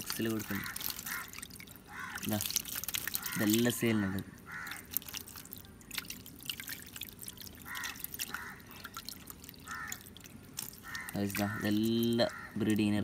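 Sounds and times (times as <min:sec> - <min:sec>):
water dripping and splashing: 0:00.0 - 0:13.0.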